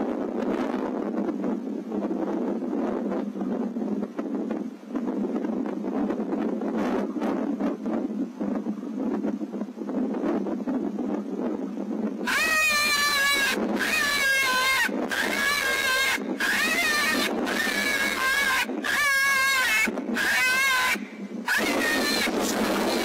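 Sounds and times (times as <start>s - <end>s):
high-pitched animal distress cries: 12.2s - 23.0s.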